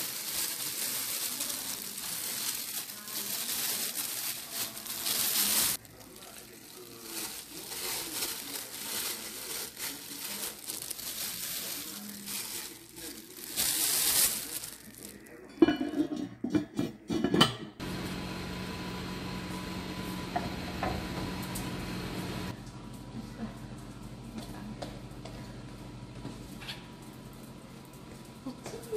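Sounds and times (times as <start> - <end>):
plastic gloves crinkling: 0.0 - 15.8
pot and lid clattering: 15.5 - 17.8.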